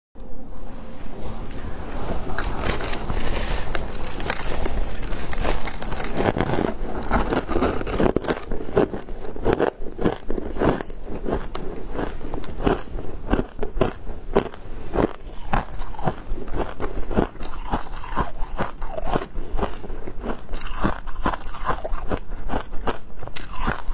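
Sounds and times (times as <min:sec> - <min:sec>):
biting into shaved ice: 0:01.4 - 0:23.9
chewing ice crunches: 0:01.4 - 0:23.9.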